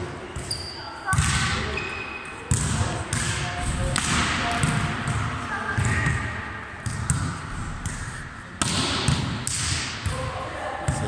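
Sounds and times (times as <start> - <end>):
sharp slaps of ball: 2.5 - 6.2, 6.8 - 10.2
volleyball being struck: 2.5 - 10.2.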